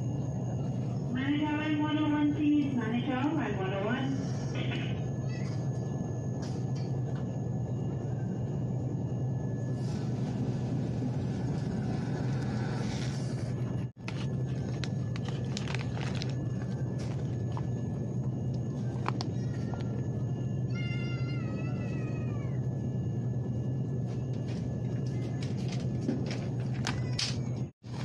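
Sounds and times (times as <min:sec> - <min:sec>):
supermarket hum and rumble: 0:00.0 - 0:28.0.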